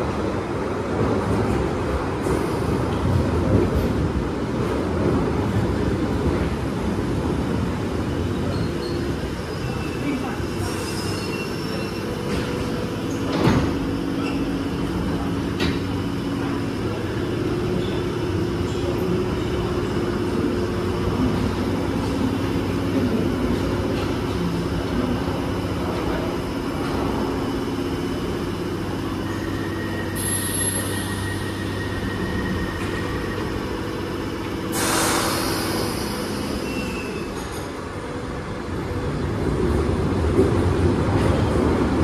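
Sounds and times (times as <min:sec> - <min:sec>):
air hiss of doors closing: 0:34.6 - 0:37.0.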